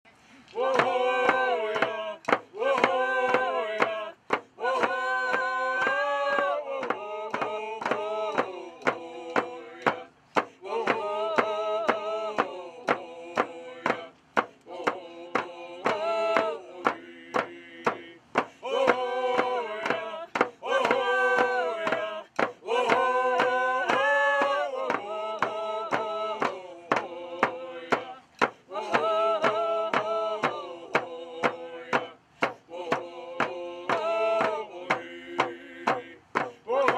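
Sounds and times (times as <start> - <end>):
group chanting in unison: 0.5 - 36.9
frame drums beating: 0.6 - 36.9.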